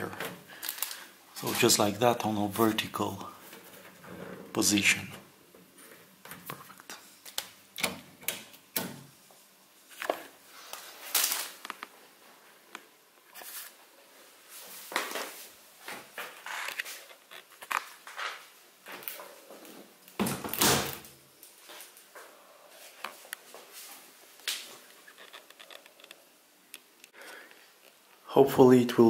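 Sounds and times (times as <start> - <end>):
plastic parts clicking and knocking: 25.1 - 26.2.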